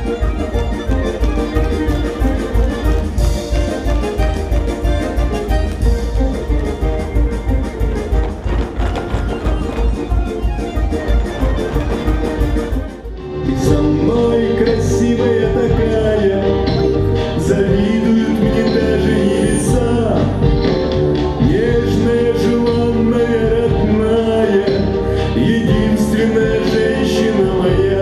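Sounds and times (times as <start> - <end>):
amplified backing music: 0.0 - 28.0
man singing into a microphone: 13.4 - 20.8, 21.4 - 28.0.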